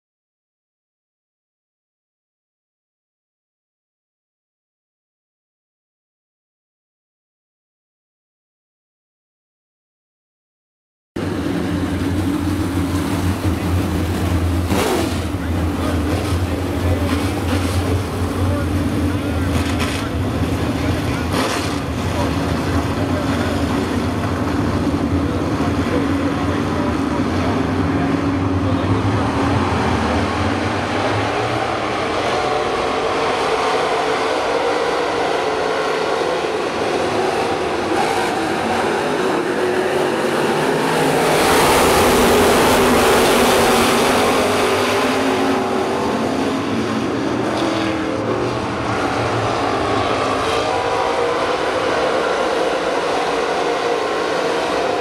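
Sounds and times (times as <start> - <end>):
race car engines: 11.2 - 55.0.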